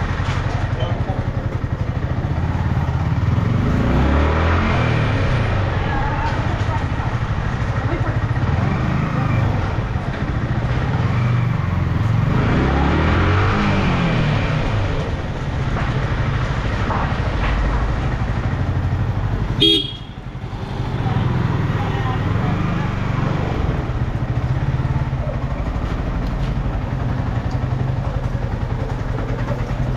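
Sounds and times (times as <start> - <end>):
motorcycle engine running: 0.0 - 29.9
horn toot: 19.6 - 20.2.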